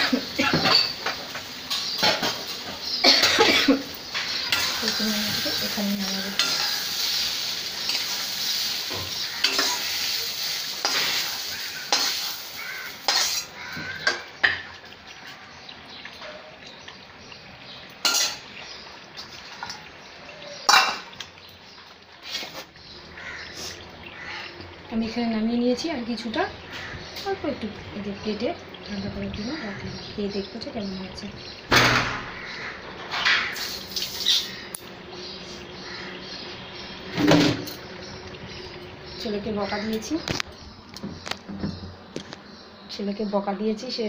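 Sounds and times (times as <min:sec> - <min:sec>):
frying sizzle: 0:00.0 - 0:44.0
utensil scraping metal pan: 0:13.0 - 0:14.2.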